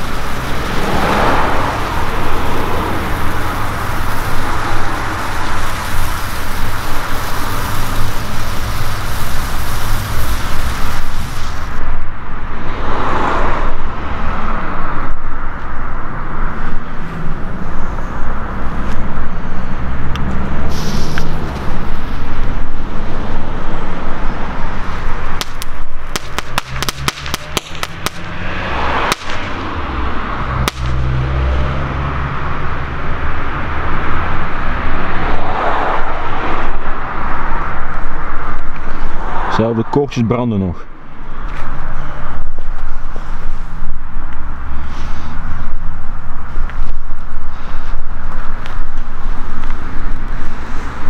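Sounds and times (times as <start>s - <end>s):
firework cracks: 0.0s - 11.9s, 20.7s - 31.9s
firework crackles: 0.0s - 12.1s, 20.1s - 39.6s, 41.3s - 51.0s
fireworks hissing: 0.0s - 12.1s, 19.9s - 40.2s, 40.9s - 51.0s
low rumble: 0.0s - 51.0s.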